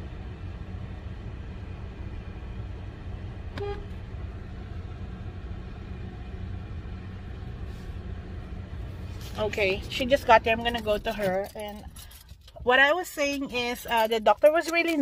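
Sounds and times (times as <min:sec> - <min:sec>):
car rumbling: 0:00.0 - 0:15.0
car horn toot: 0:03.5 - 0:04.0.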